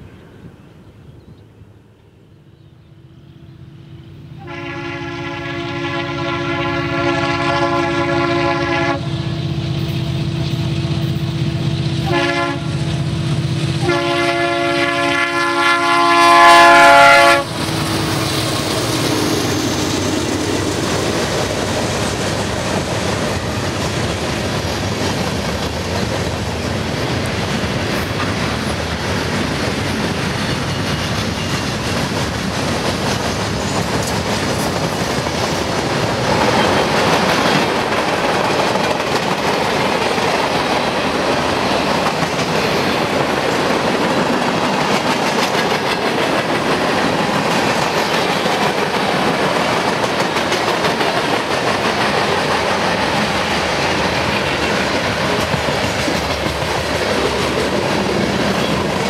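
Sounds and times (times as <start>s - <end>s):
locomotive air horn blasts: 4.4s - 9.4s, 12.0s - 13.0s, 13.8s - 17.8s
train wheels clacking over rail joints: 17.4s - 59.0s.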